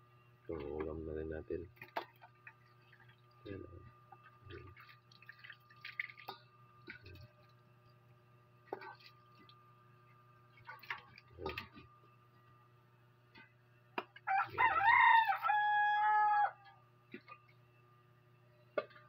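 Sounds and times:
water dripping: 1.8 - 7.6.

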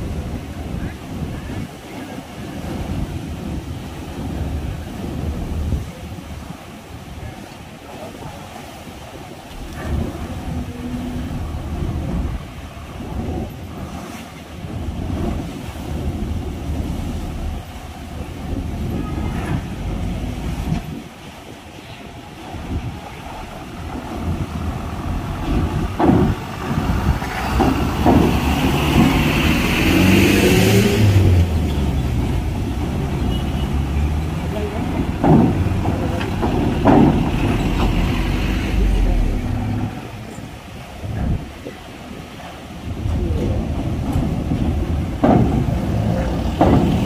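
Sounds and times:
truck engines running: 9.5 - 13.8, 14.7 - 21.0, 22.8 - 41.5, 42.9 - 47.0
wheels clanking over ramp joints: 23.0 - 39.9, 42.9 - 47.0.

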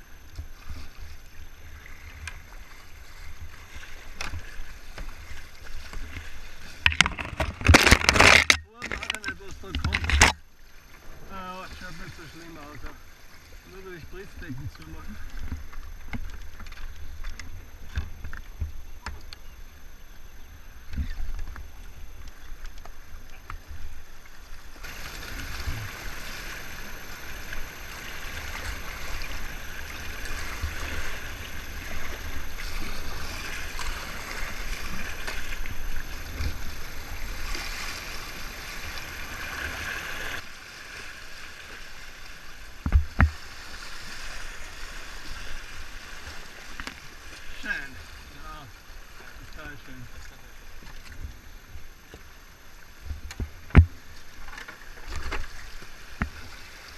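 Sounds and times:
paddle strokes in water: 0.0 - 56.9.

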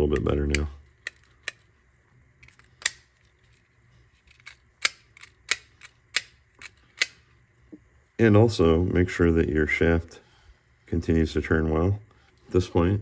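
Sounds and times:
plastic parts clicking: 0.0 - 1.7, 2.4 - 7.2.

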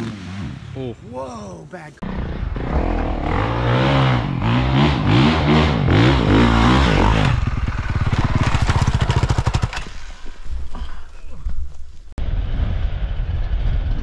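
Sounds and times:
dirt bike engine revving: 0.0 - 0.9, 2.0 - 10.2.

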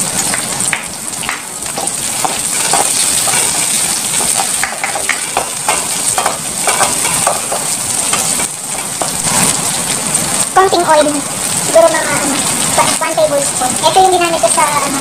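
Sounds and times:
onions sizzling in oil: 0.0 - 15.0
spatula scraping metal pan: 1.8 - 9.6.

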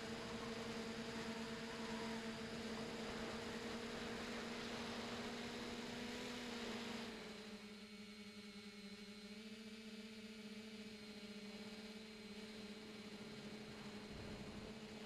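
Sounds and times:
drone motors humming: 0.0 - 8.1.

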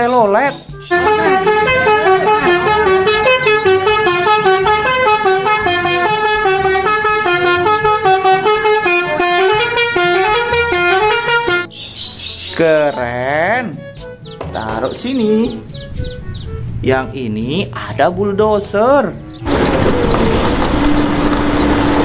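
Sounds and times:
multi-tone bus horn tune: 0.8 - 11.7, 13.7 - 14.4, 15.7 - 16.8.

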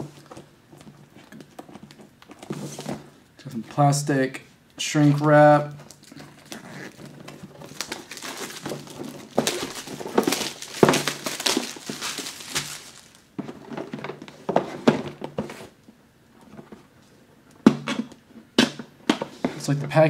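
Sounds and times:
plastic shrink wrap crinkling and tearing: 5.0 - 13.3.

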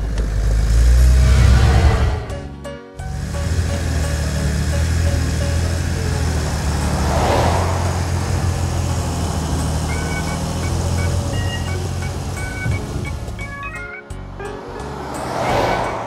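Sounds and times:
whoosh: 0.9 - 2.7.

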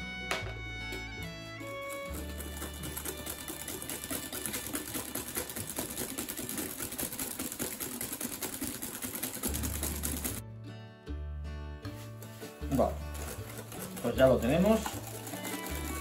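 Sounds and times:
whisk scraping glass bowl: 1.6 - 10.4, 12.2 - 16.0.

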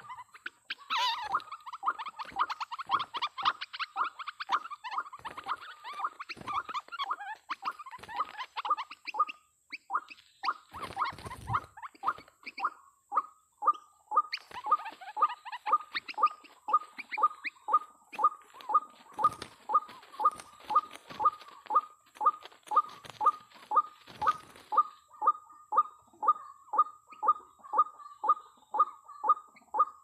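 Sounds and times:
birds scuffling and flapping: 0.0 - 9.0, 10.1 - 12.4, 14.3 - 17.1, 18.1 - 25.0
waterhens calling harshly: 0.0 - 25.5.

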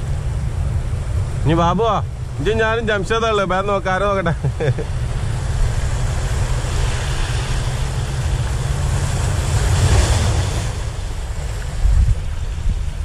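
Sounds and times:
sea waves washing against rocks: 0.0 - 13.0
wave breaking and spraying: 0.0 - 13.0
wind rumbling on microphone: 0.0 - 13.0.

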